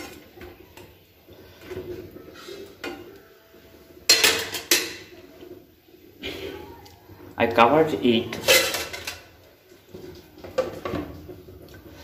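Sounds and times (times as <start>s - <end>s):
spoon scraping metal pan: 8.3s - 9.3s.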